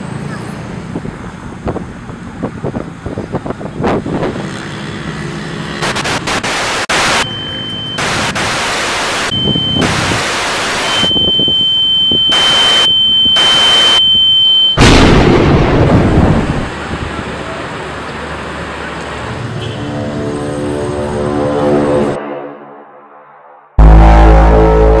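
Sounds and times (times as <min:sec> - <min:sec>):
static hiss bursts: 0:05.8 - 0:07.2, 0:08.0 - 0:10.9, 0:12.3 - 0:14.0
high steady beep: 0:06.4 - 0:14.8
loud deep boom: 0:14.8 - 0:16.7, 0:23.8 - 0:25.0.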